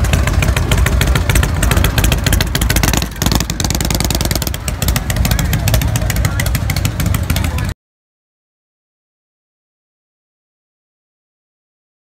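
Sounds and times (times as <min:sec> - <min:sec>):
motorcycle engine pulling away: 0:00.0 - 0:07.7.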